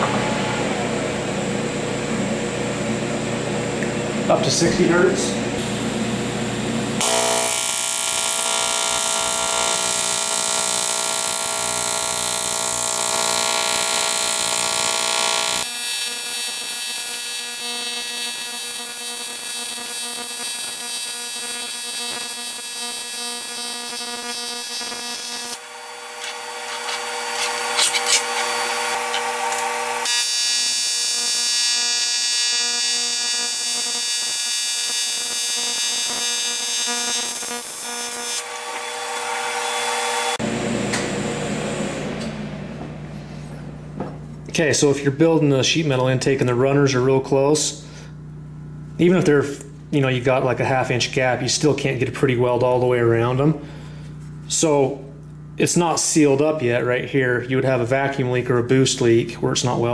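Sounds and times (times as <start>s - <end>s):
welding arc electric buzz: 5.5s - 42.3s.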